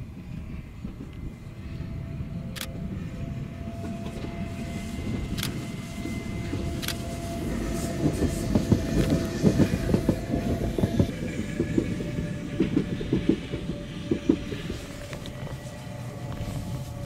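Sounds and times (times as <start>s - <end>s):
low train rumble: 0.0s - 17.0s
train wheels clattering over rails: 3.6s - 17.0s.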